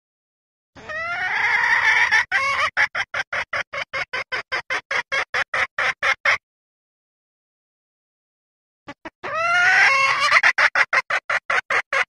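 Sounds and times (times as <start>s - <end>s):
hen squawking and clucking: 0.8s - 6.4s, 8.9s - 12.0s.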